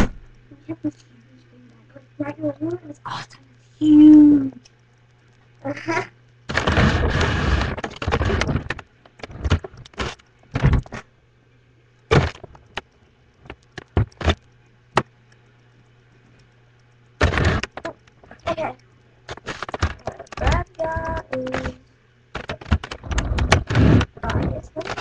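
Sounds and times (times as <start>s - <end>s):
low electrical hum: 0.0s - 25.0s
sharp clicks and knocks: 6.5s - 11.1s, 12.1s - 15.2s, 17.2s - 18.6s, 19.3s - 25.0s.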